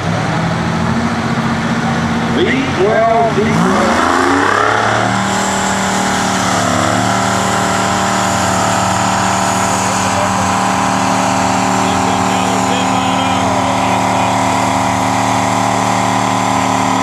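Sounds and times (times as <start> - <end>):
diesel engine revving at high revs: 0.0 - 17.0.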